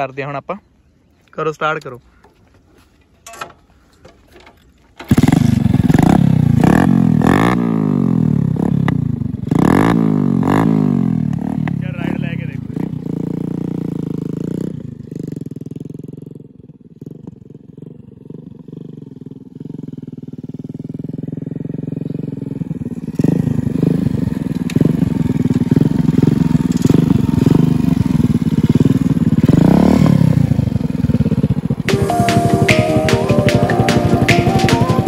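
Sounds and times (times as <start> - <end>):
motorcycle engine revving: 5.0 - 35.0
music: 31.9 - 35.0.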